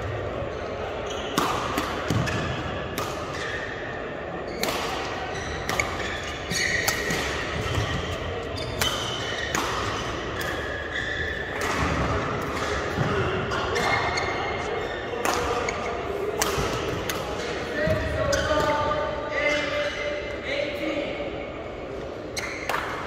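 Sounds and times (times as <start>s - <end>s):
shoes squeaking on court: 0.5s - 2.5s, 5.2s - 11.9s
rackets striking shuttlecock: 4.6s - 13.1s, 15.2s - 18.0s.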